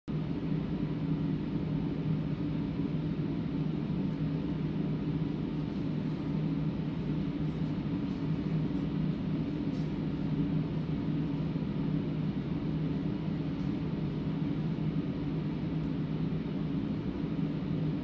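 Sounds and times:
ventilation system humming: 0.1s - 18.0s.

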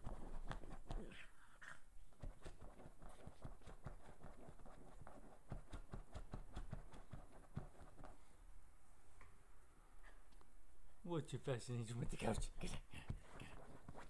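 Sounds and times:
dog claws scratching upholstery: 13.2s - 14.0s.

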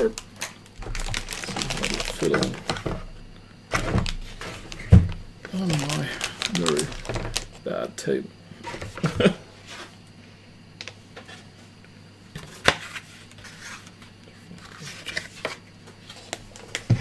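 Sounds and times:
plastic rustling: 0.0s - 3.0s, 3.7s - 7.6s
low steady hum: 0.0s - 17.0s.

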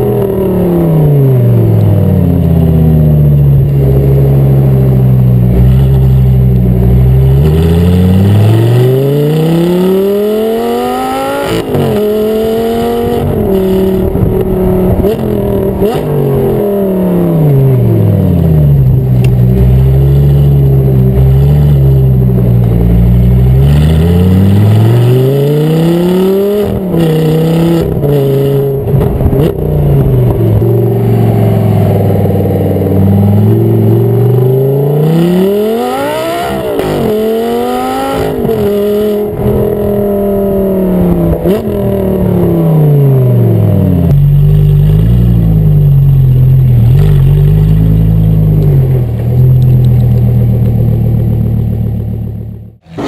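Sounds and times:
sports car engine accelerating: 0.0s - 53.0s
exhaust cracks and pops: 18.8s - 19.7s, 46.8s - 51.4s.

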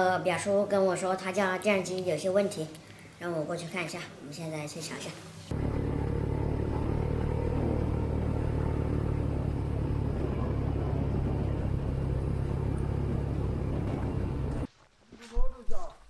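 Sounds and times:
moving vehicle rumble: 5.5s - 14.7s.

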